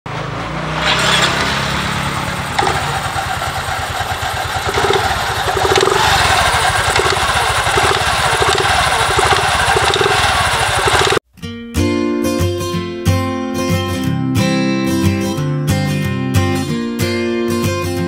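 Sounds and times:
scooter engine idling: 1.6 - 11.2
belt whir: 2.3 - 11.2.

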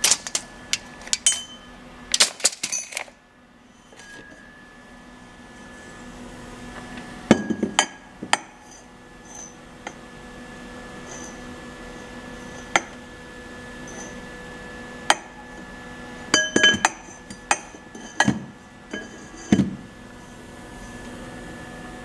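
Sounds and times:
steel tubing clinking and knocking: 0.0 - 3.0, 16.4 - 19.8
short metallic ring: 1.2 - 1.8.

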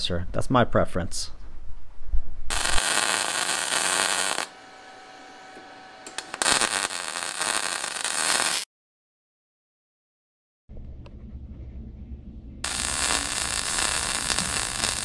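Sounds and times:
welding arc crackling and hissing: 2.5 - 8.7, 12.6 - 15.0.

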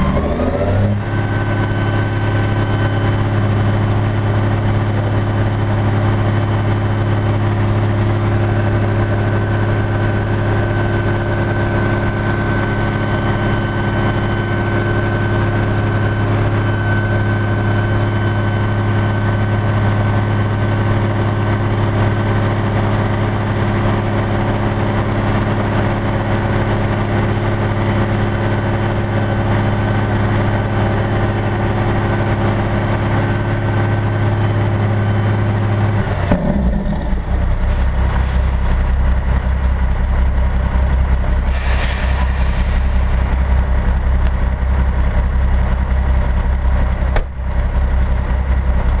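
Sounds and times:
diesel truck engine running: 0.0 - 49.0
brief hiss: 41.5 - 43.1.

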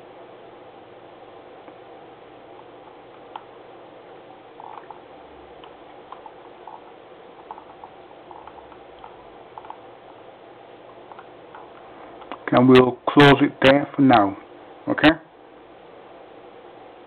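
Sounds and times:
steady background hum: 0.0 - 17.0
mouse scroll wheel clicking: 7.4 - 9.8.

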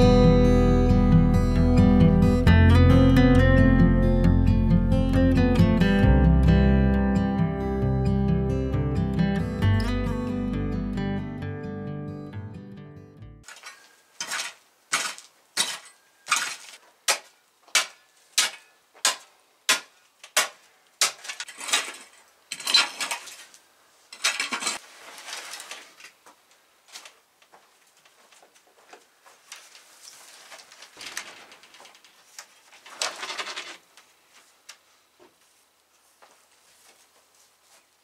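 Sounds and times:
shovel scraping gravelly dirt: 13.4 - 20.0, 21.0 - 26.0.

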